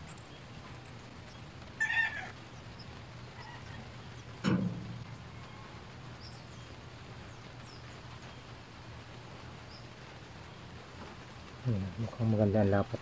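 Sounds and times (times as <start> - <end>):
knock of metal part handled: 4.4 - 5.0.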